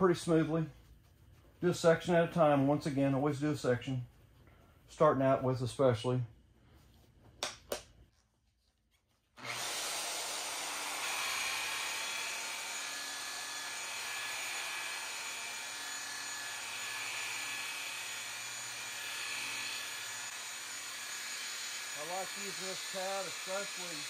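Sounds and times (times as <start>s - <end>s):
rotary polisher motor whine: 9.4s - 24.0s.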